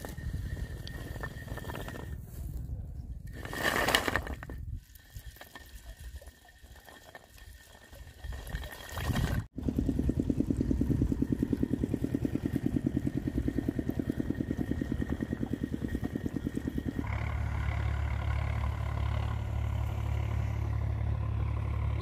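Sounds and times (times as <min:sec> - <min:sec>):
small engine running: 0:09.6 - 0:22.0.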